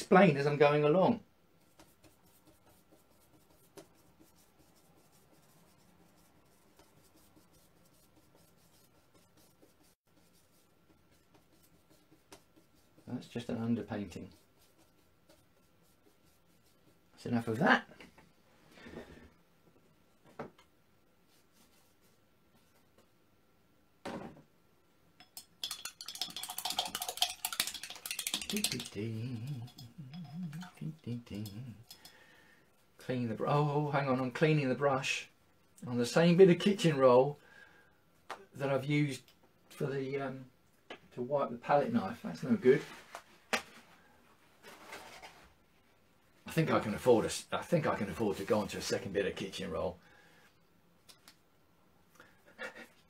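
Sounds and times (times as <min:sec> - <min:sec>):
paintbrush scratching on canvas: 0:01.6 - 0:17.6, 0:21.3 - 0:22.8, 0:26.7 - 0:31.9
painting tools clinking: 0:25.2 - 0:32.2.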